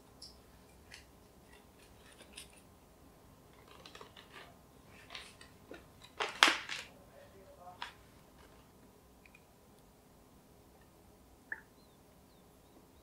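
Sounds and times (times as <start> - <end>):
paper and twine rustling: 3.5 - 7.0.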